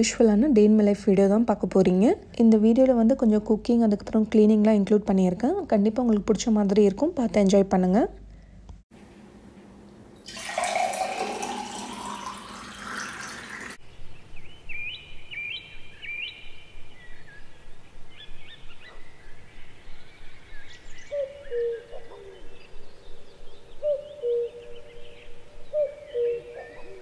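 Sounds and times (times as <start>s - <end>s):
water poured into a glass: 10.2s - 13.8s
birds chirping: 11.7s - 27.0s.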